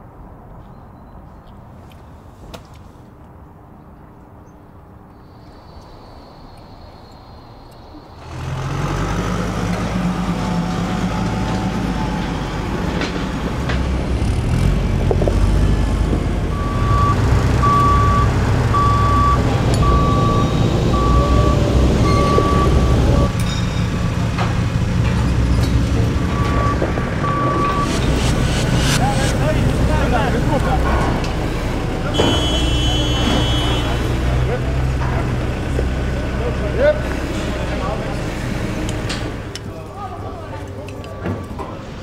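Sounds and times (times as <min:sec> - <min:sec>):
diesel engine running: 0:08.2 - 0:42.0
reversing alarm beeping: 0:16.5 - 0:24.0, 0:26.0 - 0:29.4.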